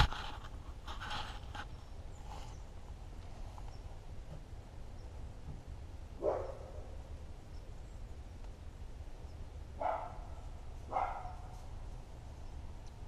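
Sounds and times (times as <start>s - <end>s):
steady low rumble: 1.7s - 13.0s
dog barking: 6.2s - 6.8s, 9.8s - 11.5s.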